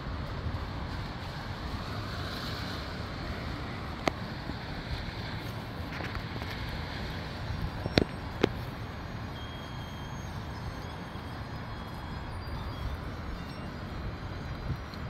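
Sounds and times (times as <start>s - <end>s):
wind blowing on microphone: 11.4s - 15.0s.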